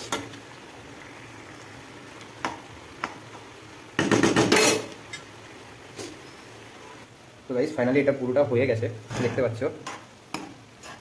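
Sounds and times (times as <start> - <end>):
spatula scraping and tapping: 9.3 - 11.0.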